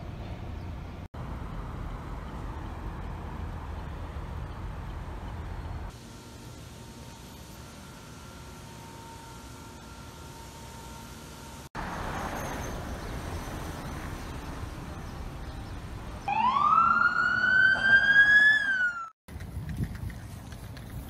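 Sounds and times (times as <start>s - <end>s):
street traffic: 0.0s - 21.0s
emergency siren wailing: 16.2s - 19.2s.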